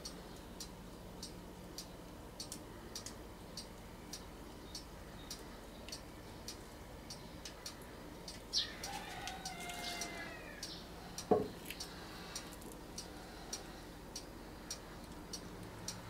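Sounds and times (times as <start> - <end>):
bird calling: 8.5 - 12.4
clock ticking: 10.0 - 16.0.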